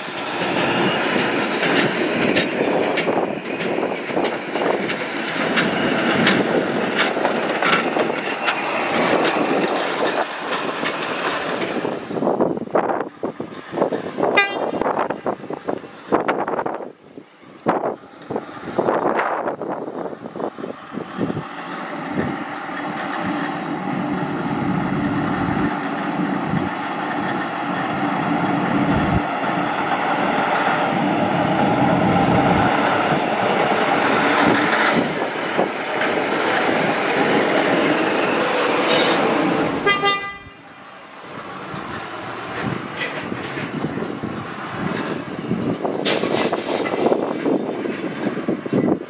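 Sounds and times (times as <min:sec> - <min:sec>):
diesel locomotive engine: 0:00.0 - 0:49.0
locomotive horn blast: 0:14.3 - 0:14.9, 0:39.8 - 0:40.8.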